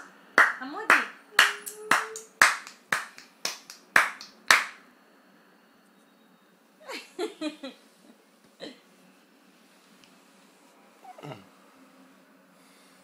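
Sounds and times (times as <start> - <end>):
hands clapping: 0.0 - 4.8.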